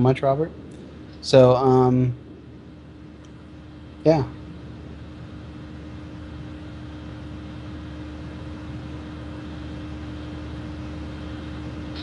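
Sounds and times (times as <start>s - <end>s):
even hiss: 0.0s - 7.6s
low hum: 0.0s - 12.0s.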